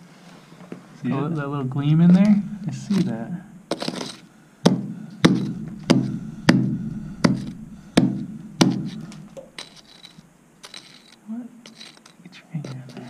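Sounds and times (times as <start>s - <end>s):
rock pick striking rock: 3.0s - 9.9s.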